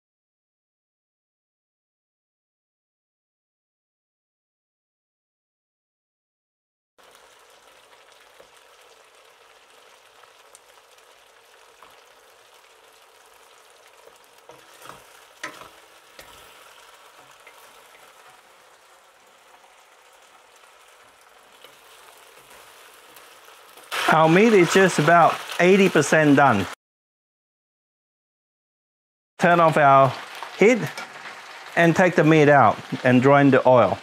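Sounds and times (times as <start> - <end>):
meat sizzling in hot oil: 7.0 - 26.8, 29.4 - 34.0.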